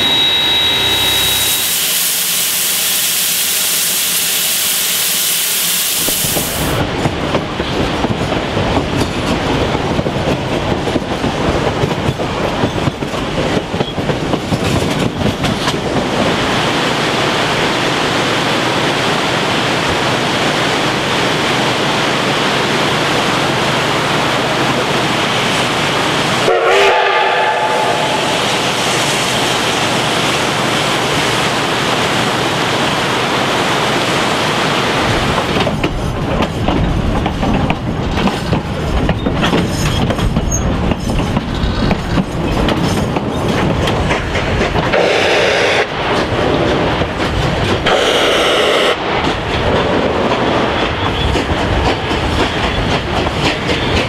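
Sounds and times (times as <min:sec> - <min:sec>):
steam train whistle: 0:00.0 - 0:06.8, 0:26.4 - 0:28.6, 0:45.0 - 0:45.9, 0:47.9 - 0:49.0
train wheels on track: 0:00.0 - 0:54.0.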